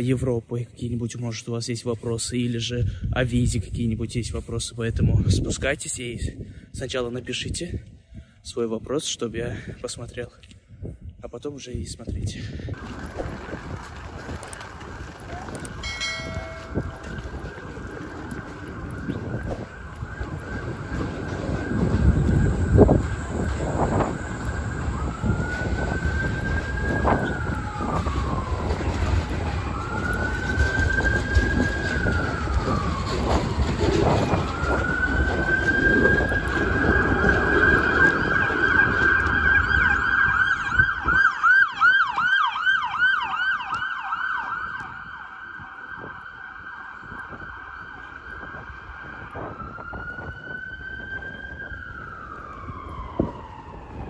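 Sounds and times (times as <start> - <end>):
street noise rumble: 12.7 - 54.0
emergency siren wailing and yelping: 15.3 - 54.0.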